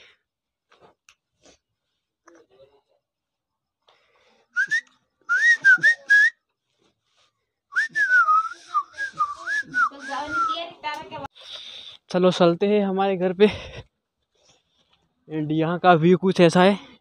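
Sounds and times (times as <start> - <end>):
person whistling: 4.6 - 6.4, 7.7 - 10.6.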